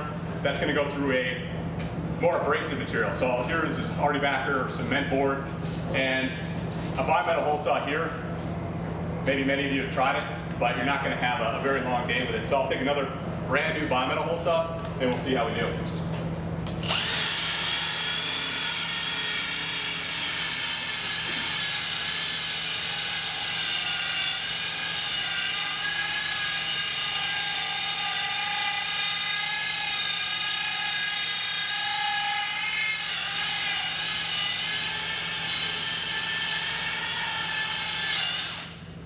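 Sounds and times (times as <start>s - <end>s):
drill hole saw whining and grinding: 16.8s - 39.0s.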